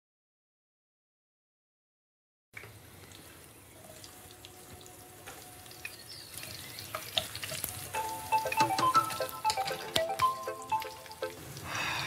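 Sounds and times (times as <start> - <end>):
food sizzling in oil: 3.9 - 11.7.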